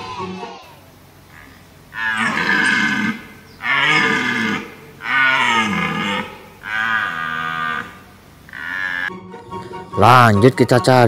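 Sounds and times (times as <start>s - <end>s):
red deer stag roaring: 1.3s - 9.1s.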